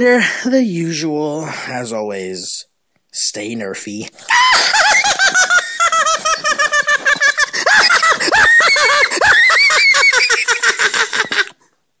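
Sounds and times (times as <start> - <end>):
person cackling laugh: 4.3 - 11.6.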